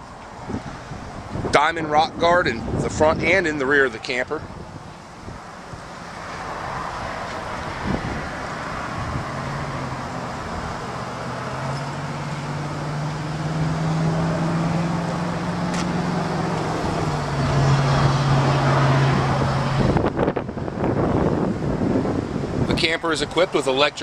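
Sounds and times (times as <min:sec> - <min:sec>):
traffic noise: 0:00.0 - 0:24.0
vehicle engine droning: 0:00.0 - 0:24.0.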